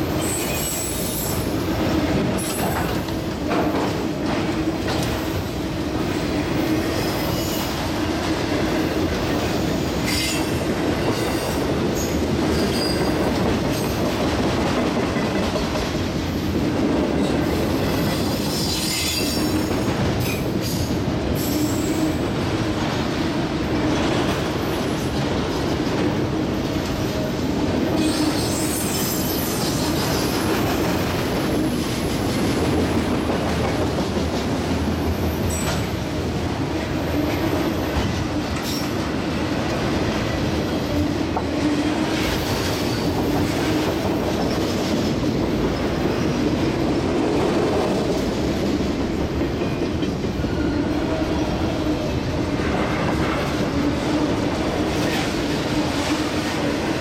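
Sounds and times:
freight train wheels rumbling: 0:00.0 - 0:57.0
high wheel squeal: 0:00.2 - 0:01.5, 0:28.0 - 0:30.4.

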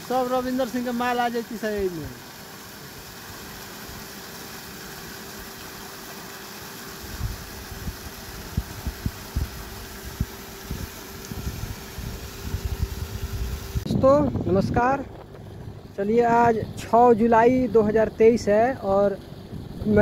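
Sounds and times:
water jet splashing onto mud: 0:00.0 - 0:13.8
electric water pump humming: 0:00.0 - 0:20.0.

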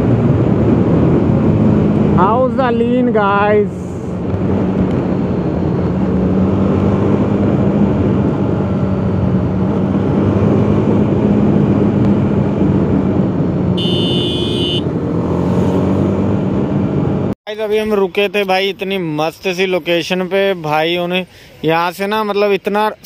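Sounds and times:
wind rush on microphone: 0:00.0 - 0:13.9
motorcycle engine cruising: 0:04.0 - 0:17.3.

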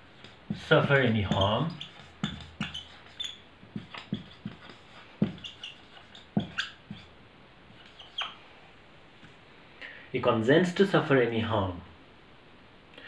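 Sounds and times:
marker squeaking on whiteboard: 0:00.0 - 0:08.4.

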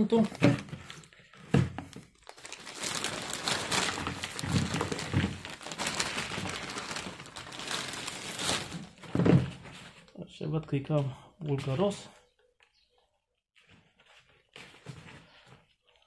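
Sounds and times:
plastic bag crinkling: 0:01.9 - 0:09.4.

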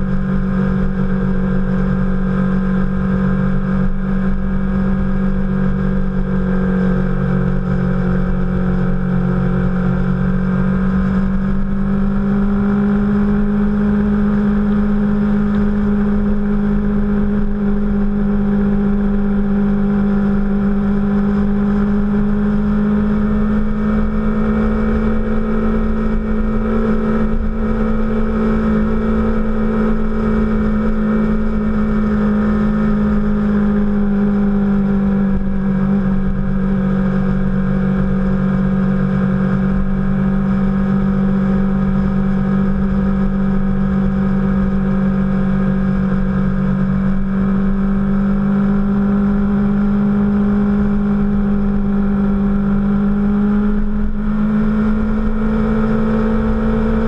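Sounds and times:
motorcycle engine cruising: 0:00.0 - 0:57.0
wind and road rumble: 0:00.0 - 0:57.0.

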